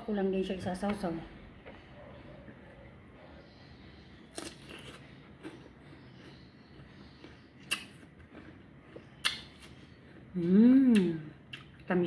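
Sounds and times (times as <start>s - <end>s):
crisp pear bites: 4.3s - 6.4s, 7.0s - 9.9s.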